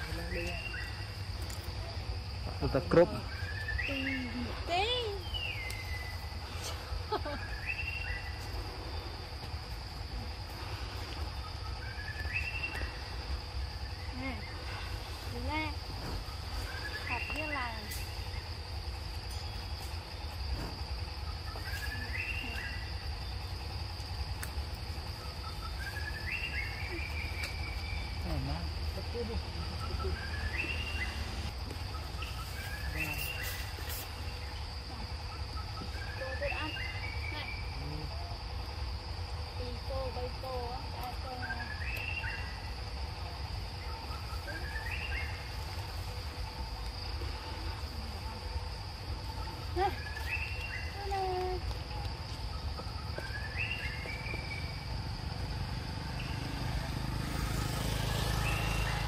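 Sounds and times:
forest insects droning: 0.0 - 59.0
rising whistled calls: 3.0 - 9.2, 25.1 - 28.3, 29.4 - 37.8, 41.3 - 42.8, 43.8 - 46.0, 52.4 - 55.0, 56.0 - 59.0.

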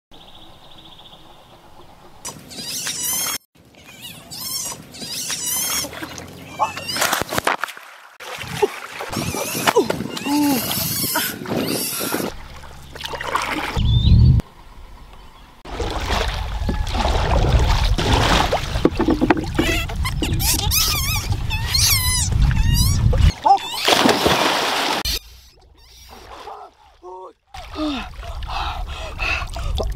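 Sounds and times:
wind: 0.1 - 29.9
water around a canoe: 0.3 - 29.9
animal high-pitched squeals: 2.3 - 7.2, 9.1 - 12.3, 19.6 - 24.1, 25.0 - 26.4.

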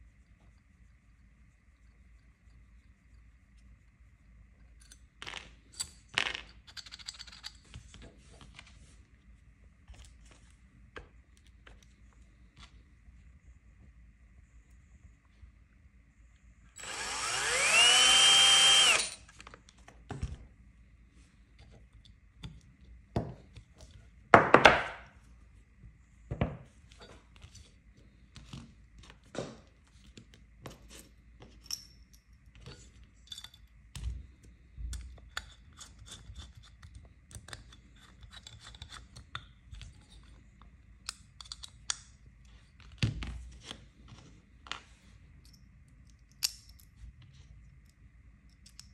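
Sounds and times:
small metal parts clicking: 4.7 - 7.7
cordless drill whining: 16.8 - 19.3.

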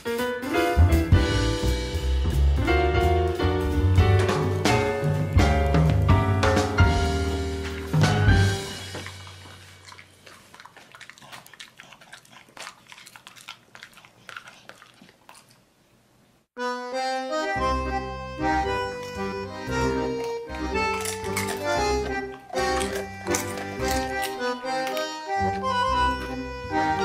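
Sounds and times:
instrumental tune: 0.0 - 9.4, 16.6 - 27.0
background music chord: 0.2 - 9.0, 16.6 - 27.0
dog chewing and licking lips: 7.4 - 16.0, 18.6 - 27.0.

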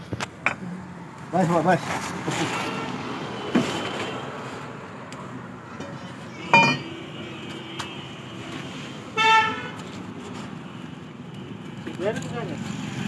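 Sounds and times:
metal parts clanking: 6.5 - 6.9.

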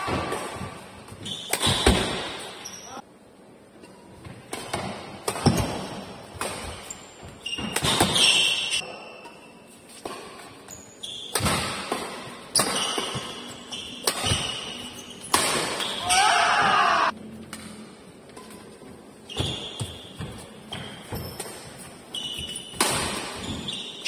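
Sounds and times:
racket hitting shuttlecock: 0.0 - 2.6, 4.2 - 16.3, 19.4 - 24.0
shoes squeaking on court: 0.6 - 3.0, 5.4 - 16.0, 18.3 - 24.0.

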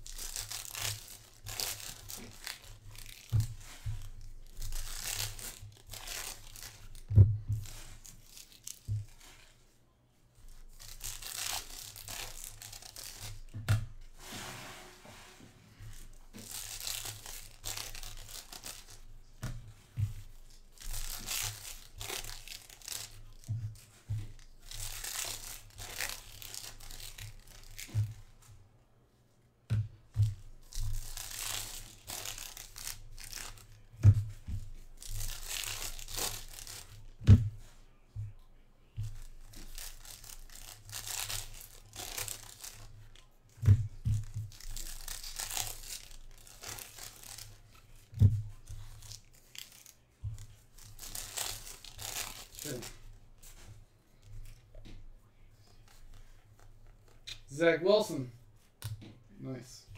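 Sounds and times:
foil packs tearing and crinkling: 0.0 - 8.9, 10.8 - 13.4, 16.4 - 19.1, 20.7 - 23.5, 24.4 - 27.9, 30.7 - 33.8, 34.9 - 37.1, 39.2 - 42.9, 44.2 - 48.0, 50.6 - 53.0
cards rustling: 0.0 - 9.6, 15.8 - 28.4, 30.1 - 37.7, 39.0 - 54.8.

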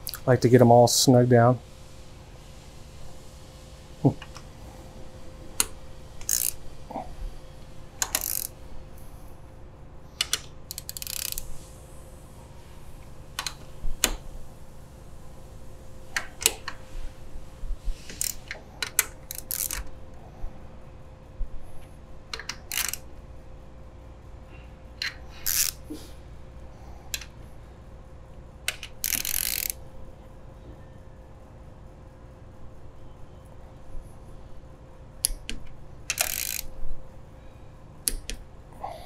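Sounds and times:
ratchet wrench clicking: 5.6 - 6.6, 8.0 - 8.6, 10.2 - 11.7, 18.0 - 19.9, 22.3 - 23.1, 25.0 - 25.8, 28.7 - 29.8, 35.2 - 36.8.

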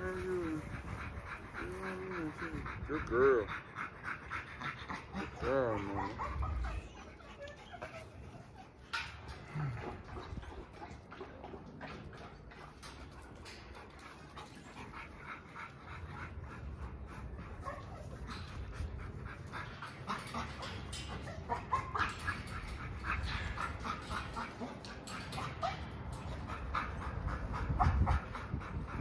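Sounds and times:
dog whining: 5.2 - 9.8.

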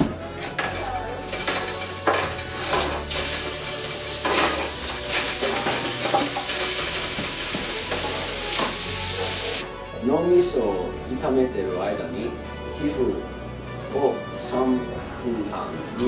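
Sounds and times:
meat sizzling in a frying pan: 1.2 - 9.6.

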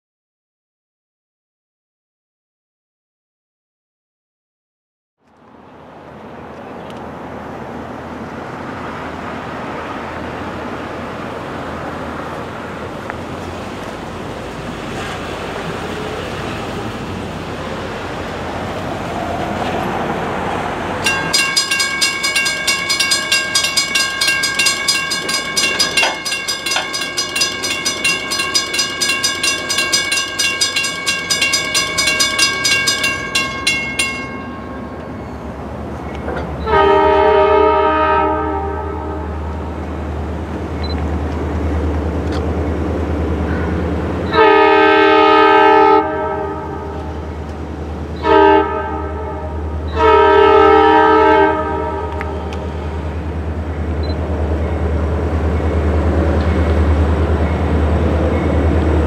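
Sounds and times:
train rumbling: 5.5 - 59.0
bell ringing rapidly: 21.1 - 34.8
locomotive air horn blast: 36.6 - 39.6, 44.3 - 47.1, 48.2 - 52.8.

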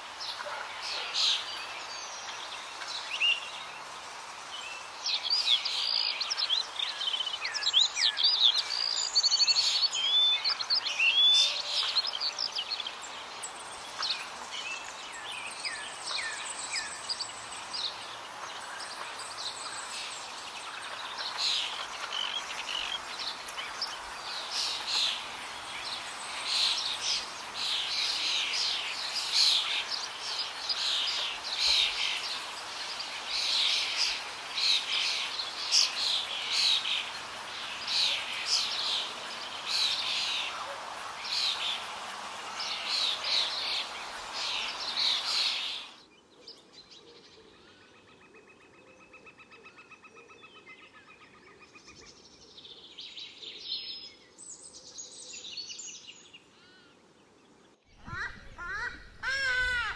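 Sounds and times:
thin held bird calls: 58.0 - 59.9.

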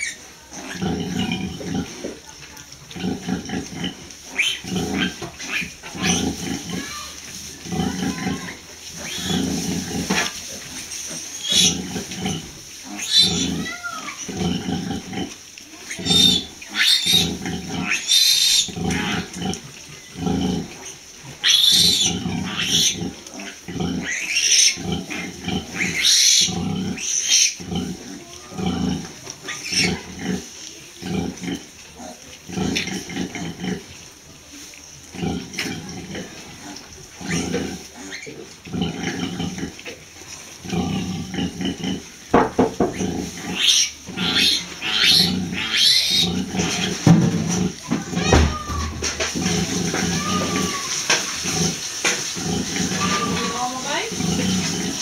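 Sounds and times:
piglets squealing: 0.0 - 1.4, 4.3 - 9.5, 11.2 - 11.9, 12.9 - 14.7, 15.8 - 30.4, 37.2 - 39.6, 43.0 - 47.0, 47.8 - 51.4, 52.7 - 54.5.

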